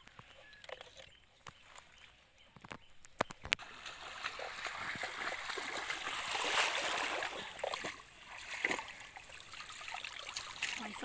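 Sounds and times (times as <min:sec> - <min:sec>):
push net splashing through water: 0:03.6 - 0:11.0.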